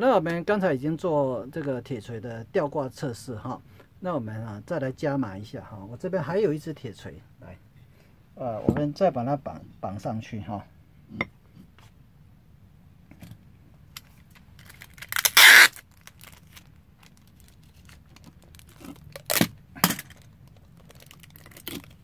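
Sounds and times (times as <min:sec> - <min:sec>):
packing tape pulled off: 0:14.1 - 0:22.0
tape ripping: 0:14.6 - 0:22.0.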